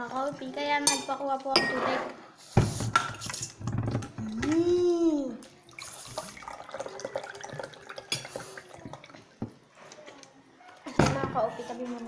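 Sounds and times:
water pouring into a glass: 5.4s - 9.4s.

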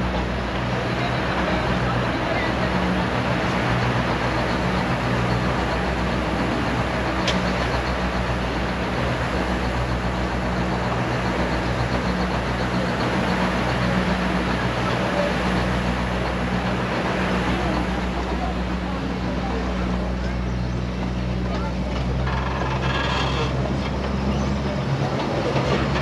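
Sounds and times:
diesel locomotive hum: 0.0s - 26.0s
train wheels on track: 0.0s - 26.0s.

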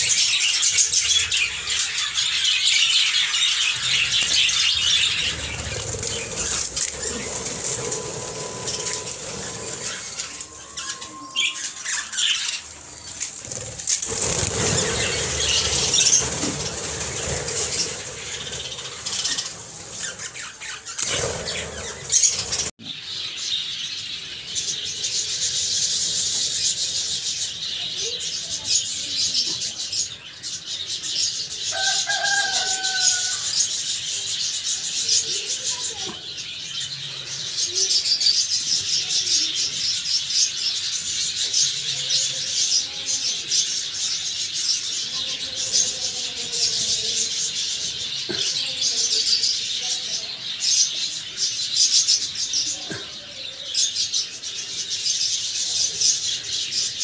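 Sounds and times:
wings flapping: 3.6s - 22.8s
rustling: 4.0s - 11.0s, 11.6s - 22.7s.

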